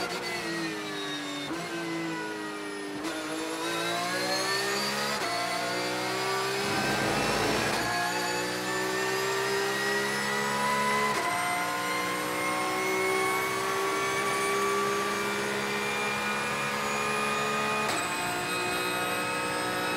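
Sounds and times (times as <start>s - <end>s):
race car engine at full throttle: 0.0s - 19.9s
gear upshifts: 6.5s - 8.0s.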